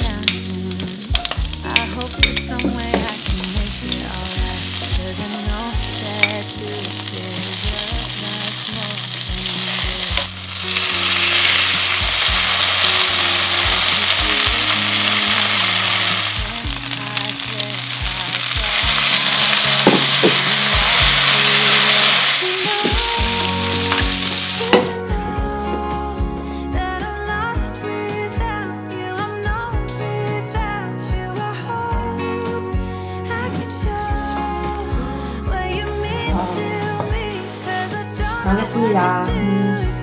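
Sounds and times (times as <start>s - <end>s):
garlic sizzling in oil: 0.0s - 24.9s.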